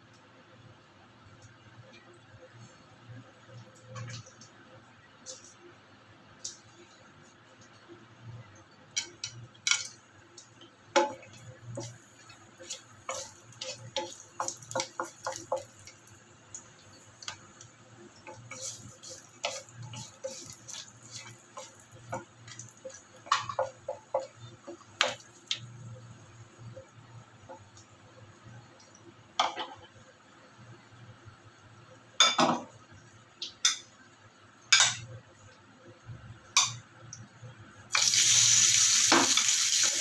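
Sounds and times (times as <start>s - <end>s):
spices crackling in hot oil: 6.3s - 29.1s, 37.9s - 40.0s
wooden spatula stirring: 10.9s - 17.4s, 18.1s - 25.2s.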